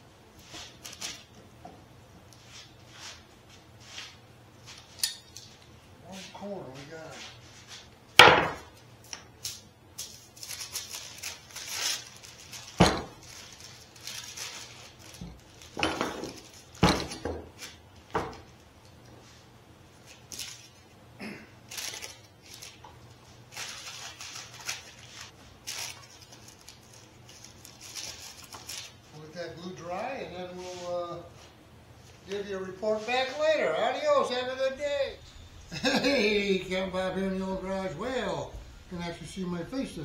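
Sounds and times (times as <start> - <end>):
paper towels rustling: 10.1 - 16.8, 21.7 - 29.2, 30.5 - 33.8.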